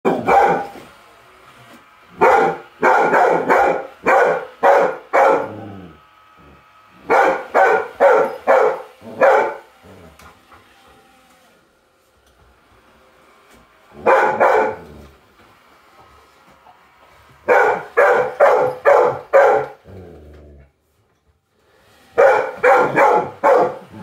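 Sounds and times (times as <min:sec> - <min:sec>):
dog barking: 0:00.0 - 0:00.8, 0:02.2 - 0:05.7, 0:07.0 - 0:09.7, 0:14.0 - 0:15.0, 0:17.4 - 0:19.8, 0:22.2 - 0:24.0.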